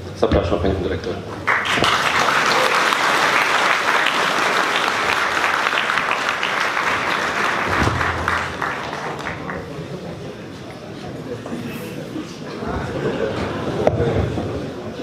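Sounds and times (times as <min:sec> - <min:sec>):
audience applauding: 0:01.3 - 0:10.0.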